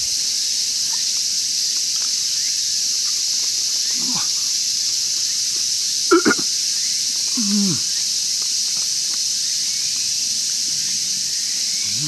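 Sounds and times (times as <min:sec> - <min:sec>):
insects droning: 0:00.0 - 0:12.0
man humming while chewing: 0:04.0 - 0:04.4, 0:06.1 - 0:06.5, 0:07.3 - 0:07.9.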